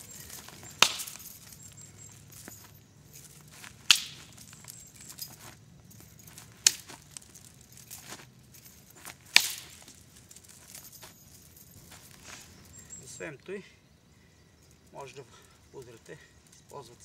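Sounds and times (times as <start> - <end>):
metal chain clacking: 0.0 - 13.3.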